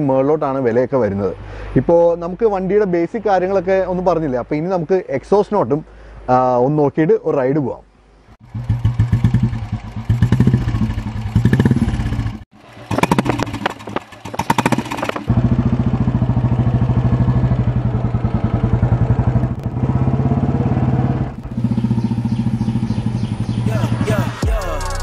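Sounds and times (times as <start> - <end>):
motorcycle engine exhaust: 8.4 - 23.8.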